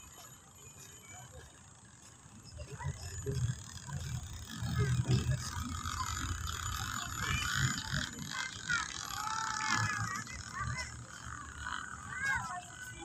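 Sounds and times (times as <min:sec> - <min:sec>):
footsteps on paved path: 0:00.0 - 0:08.6.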